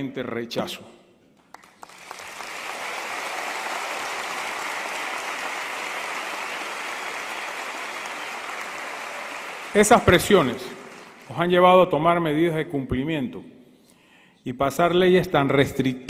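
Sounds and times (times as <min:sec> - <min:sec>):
large crowd applauding: 0:01.4 - 0:11.6.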